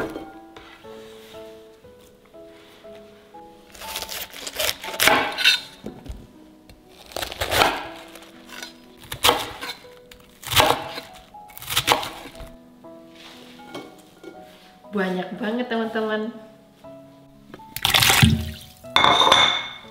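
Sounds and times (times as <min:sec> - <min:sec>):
knife chopping cabbage on board: 0:03.8 - 0:05.6, 0:06.9 - 0:09.8, 0:10.4 - 0:12.5.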